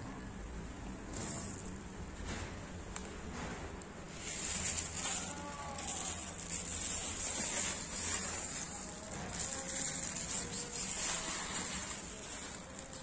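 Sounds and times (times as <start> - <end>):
cat crunching dry kibble: 4.1 - 13.0.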